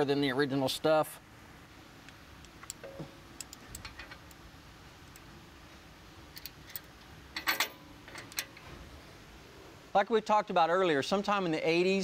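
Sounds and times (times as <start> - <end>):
metal hardware clicking: 2.4 - 4.4, 6.3 - 8.6.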